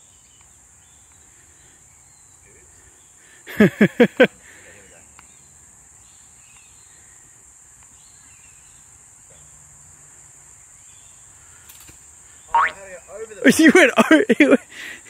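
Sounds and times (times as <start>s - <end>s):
faint bird chirps: 5.2s - 9.6s, 10.6s - 13.3s
high-pitched insect buzzing: 12.5s - 12.8s
loud falling bird call: 12.5s - 13.0s.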